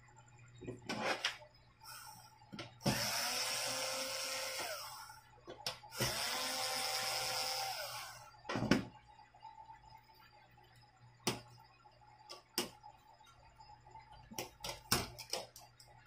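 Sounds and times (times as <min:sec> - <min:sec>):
electric screwdriver whine: 0:02.8 - 0:05.0, 0:05.9 - 0:08.3.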